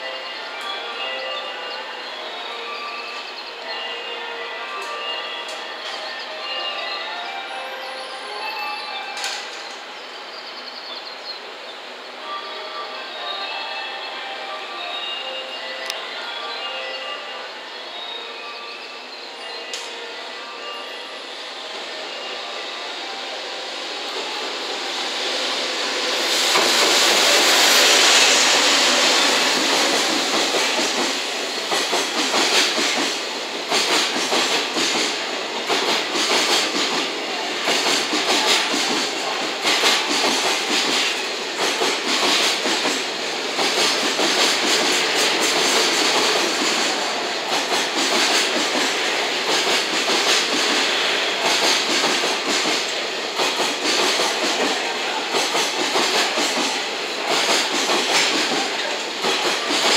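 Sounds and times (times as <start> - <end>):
electric locomotive passing: 0.0 - 59.9
freight train rumbling hiss: 0.0 - 59.9.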